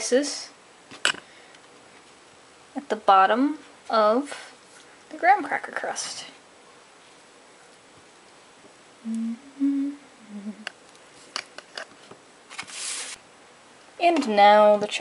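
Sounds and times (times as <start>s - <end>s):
person humming: 9.0s - 10.7s.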